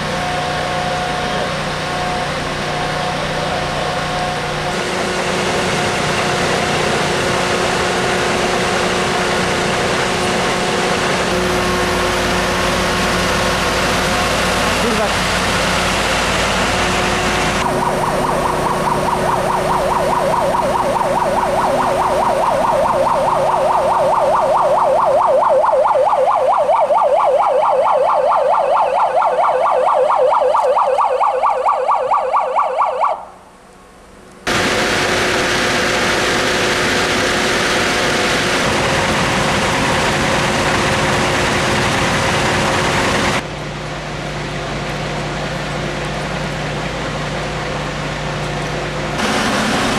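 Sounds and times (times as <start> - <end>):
siren warbling: 0.0 - 33.5.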